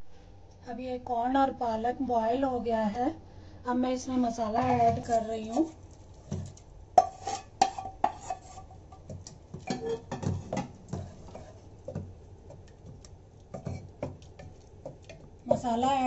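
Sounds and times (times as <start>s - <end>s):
wooden spatula scraping a pot: 4.7s - 16.0s.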